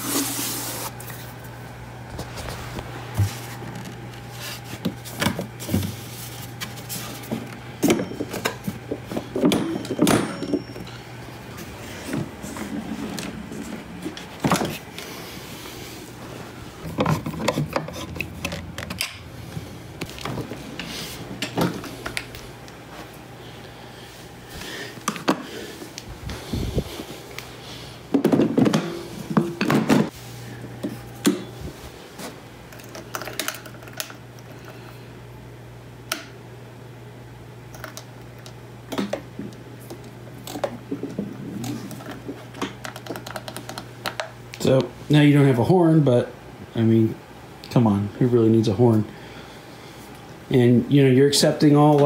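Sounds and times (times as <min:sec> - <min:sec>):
plastic parts clicking and rattling: 0:42.8 - 0:44.3.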